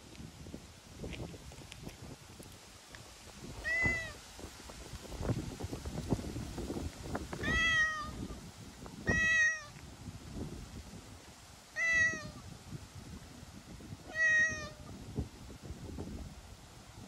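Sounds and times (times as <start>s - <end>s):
cat meowing: 3.6s - 4.2s, 7.4s - 8.2s, 9.1s - 9.8s, 11.8s - 12.4s, 14.1s - 14.9s.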